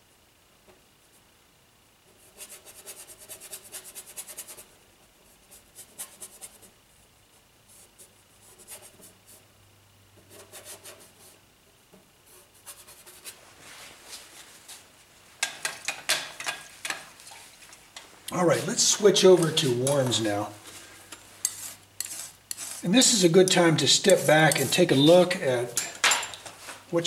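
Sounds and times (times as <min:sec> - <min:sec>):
sharp brush taps: 0:15.4 - 0:26.8
brush scrubbing on canvas: 0:18.5 - 0:25.1.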